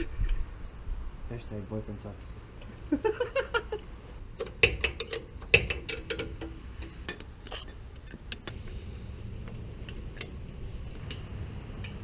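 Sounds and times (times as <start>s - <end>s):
wrench clicking on metal bolts: 4.4s - 7.3s.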